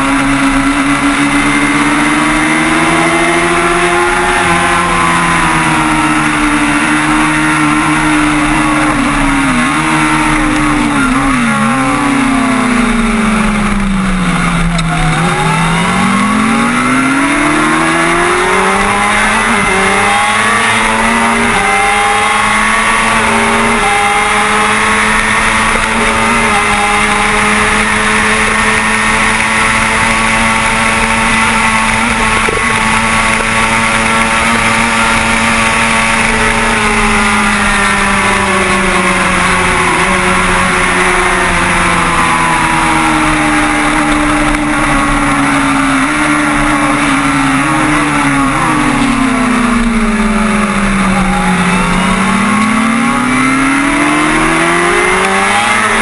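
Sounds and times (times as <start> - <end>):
motorcycle engine revving: 0.0 - 56.0.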